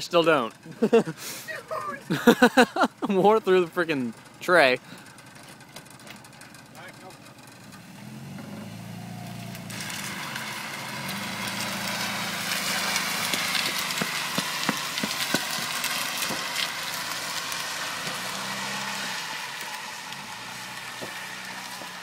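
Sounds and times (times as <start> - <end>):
car engine running: 0.0 - 22.0
hissing scrape on wet asphalt: 8.8 - 22.0.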